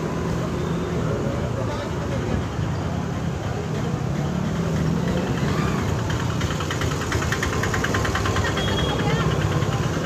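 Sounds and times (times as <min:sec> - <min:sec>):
vehicle engine idling: 0:03.1 - 0:10.0
rapid rattling clatter: 0:04.5 - 0:10.0.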